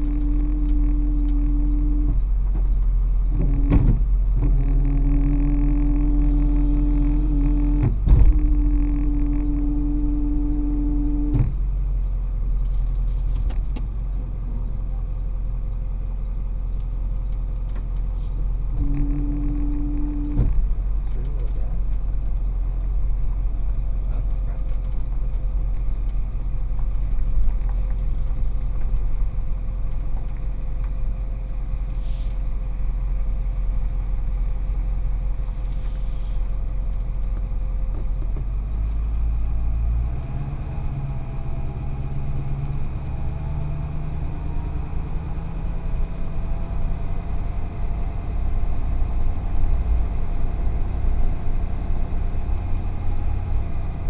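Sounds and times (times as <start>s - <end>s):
higher hum: 0.0s - 12.0s, 18.5s - 24.7s
truck engine running: 0.0s - 54.0s.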